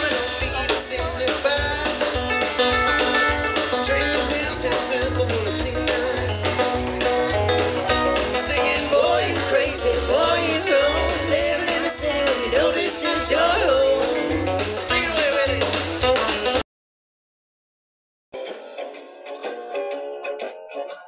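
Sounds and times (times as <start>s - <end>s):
person singing: 0.0s - 2.2s, 3.7s - 6.8s, 7.8s - 16.6s
acoustic guitars strummed: 0.0s - 16.6s
drums: 0.0s - 16.6s
electric guitar: 0.0s - 16.6s, 18.4s - 21.0s.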